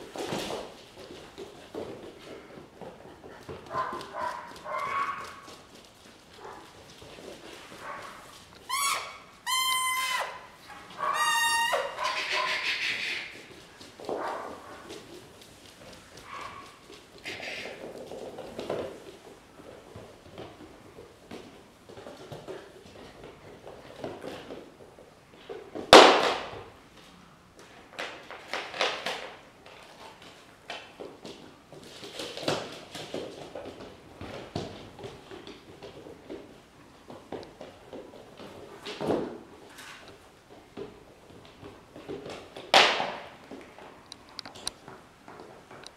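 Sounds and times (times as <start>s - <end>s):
puppies scuffling: 0.0s - 45.9s
puppies squealing: 8.7s - 13.3s.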